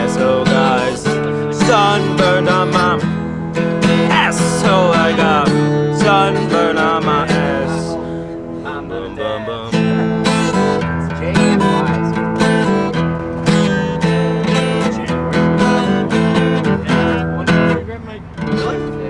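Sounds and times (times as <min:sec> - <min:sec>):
acoustic guitar strumming chords: 0:00.0 - 0:19.0.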